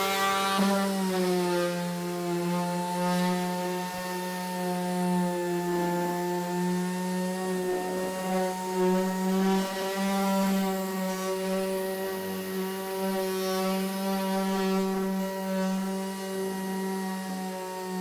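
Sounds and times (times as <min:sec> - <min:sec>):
orbital sander on panel: 0:00.0 - 0:18.0.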